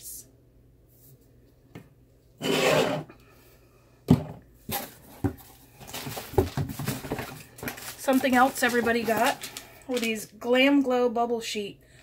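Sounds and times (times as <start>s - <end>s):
packaging rustling: 4.7s - 10.3s.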